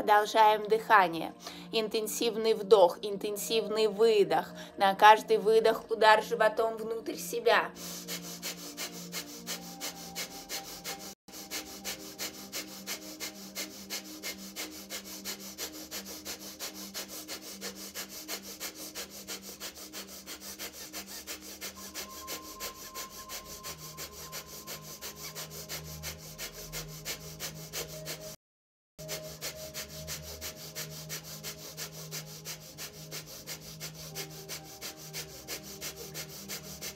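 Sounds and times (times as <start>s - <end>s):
rapid forced breathing through nose: 1.4s - 1.7s, 7.7s - 28.4s, 29.0s - 36.9s.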